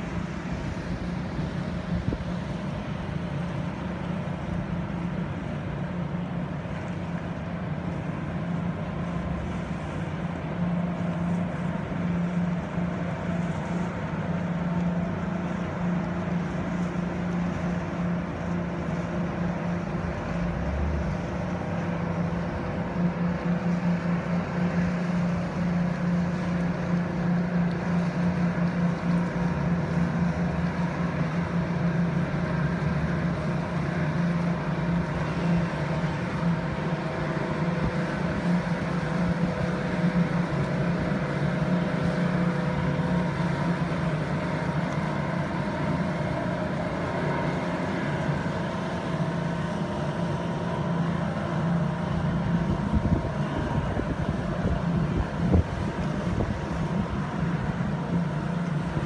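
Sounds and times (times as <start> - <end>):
boat engines droning: 0.0 - 59.0.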